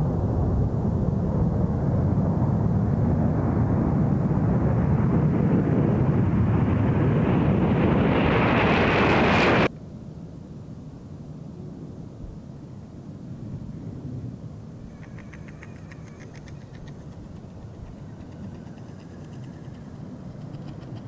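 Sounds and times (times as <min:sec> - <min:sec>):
jet engines roaring at takeoff: 0:00.0 - 0:09.7, 0:14.9 - 0:21.0.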